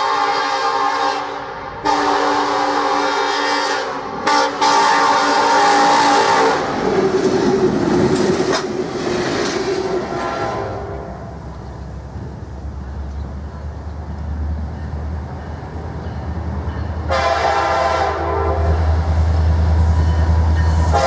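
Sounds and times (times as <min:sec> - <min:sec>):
locomotive air horn: 0:00.0 - 0:06.7, 0:10.1 - 0:11.4, 0:17.1 - 0:18.9
freight train rumbling past: 0:00.0 - 0:21.0.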